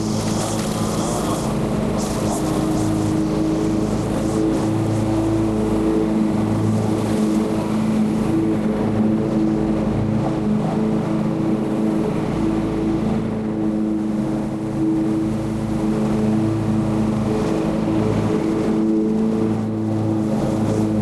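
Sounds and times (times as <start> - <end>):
lawn mower engine running: 0.0 - 21.0.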